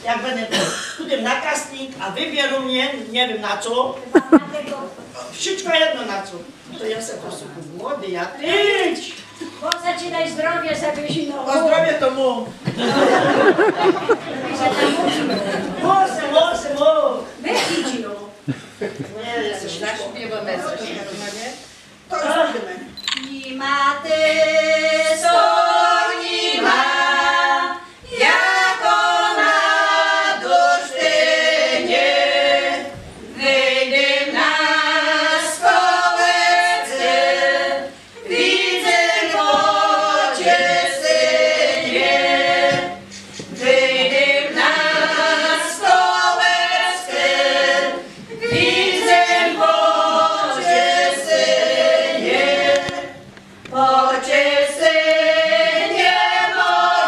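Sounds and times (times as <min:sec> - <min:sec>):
group singing unaccompanied: 0:12.6 - 0:16.9, 0:23.3 - 0:57.0.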